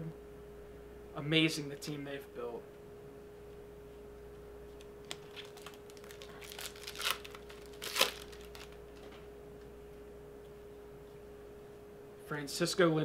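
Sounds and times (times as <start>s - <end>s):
faint hum: 0.0s - 13.0s
baseball cards and wrapper crinkling: 4.8s - 9.2s.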